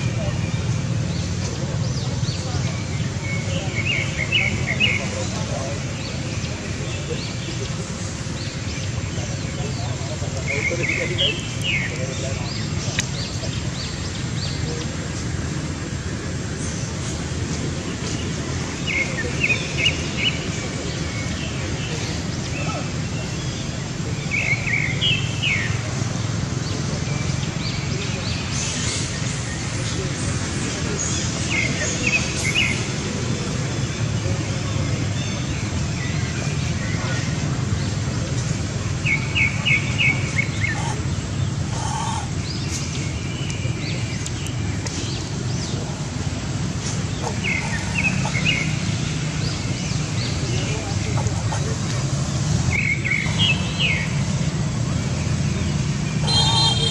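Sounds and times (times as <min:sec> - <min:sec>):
low background noise: 0:00.0 - 0:56.9
steady low background noise: 0:00.0 - 0:56.9
short high chirping calls: 0:56.2 - 0:56.9.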